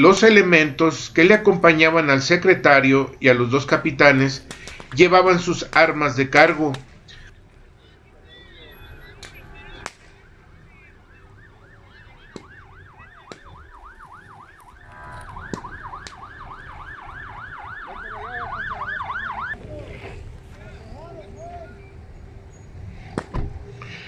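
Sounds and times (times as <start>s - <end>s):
emergency siren yelping: 8.2s - 19.6s.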